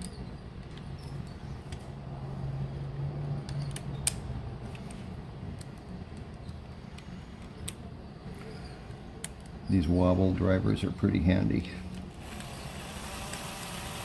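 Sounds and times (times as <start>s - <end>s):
metallic socket clicks: 3.4s - 5.0s.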